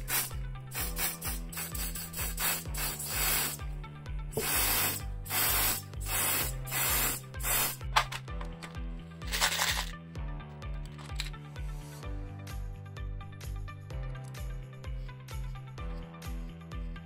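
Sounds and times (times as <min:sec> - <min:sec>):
aerosol can spraying: 0:00.0 - 0:03.7, 0:04.3 - 0:08.2
background music with beat: 0:00.0 - 0:17.0.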